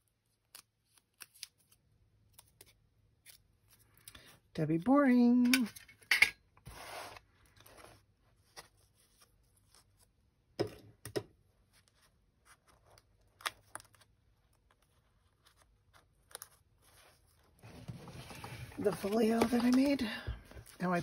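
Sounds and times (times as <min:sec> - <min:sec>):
paper rustling: 0:11.8 - 0:21.0.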